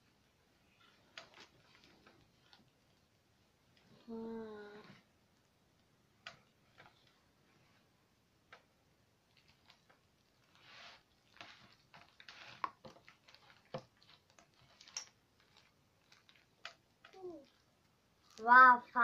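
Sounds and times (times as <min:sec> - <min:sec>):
slime squelching and smacking: 0:09.2 - 0:18.6.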